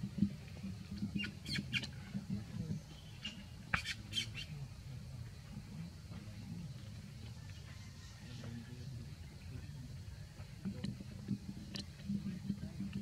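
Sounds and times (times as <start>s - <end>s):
high-pitched animal squeaks: 1.2s - 1.9s.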